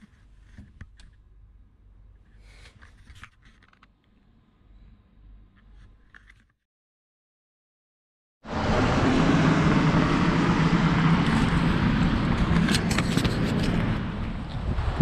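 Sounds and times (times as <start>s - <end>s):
motor vehicle engine rumbling: 8.5s - 15.0s.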